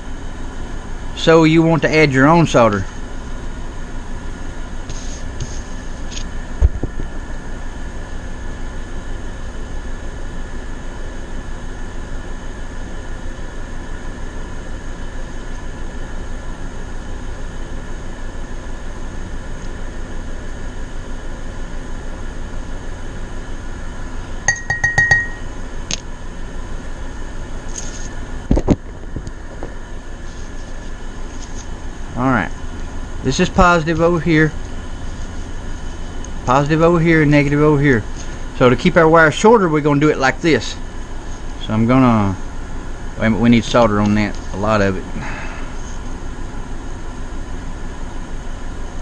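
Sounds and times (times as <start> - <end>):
air conditioner hum: 0.0 - 49.0
brief metallic ring: 24.5 - 25.5.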